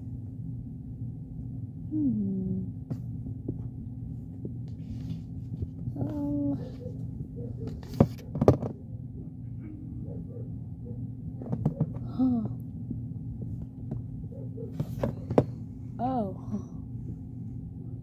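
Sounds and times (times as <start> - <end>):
low hum: 0.0 - 18.0
child's wordless voice: 6.0 - 6.8
toys knocking on carpet: 7.9 - 8.8, 11.4 - 12.1, 14.8 - 15.6.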